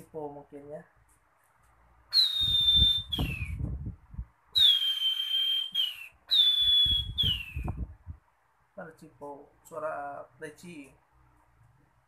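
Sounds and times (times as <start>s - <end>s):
man whistling bird call: 2.1s - 3.6s, 4.6s - 7.8s.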